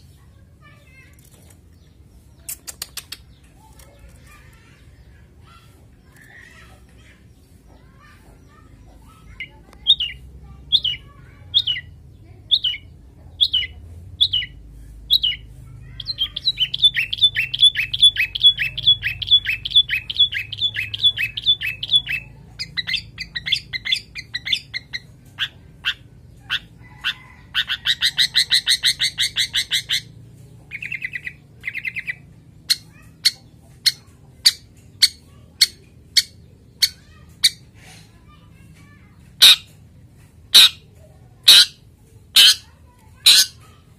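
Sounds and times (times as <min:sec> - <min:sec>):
shrike calling: 0:41.5 - 0:43.6.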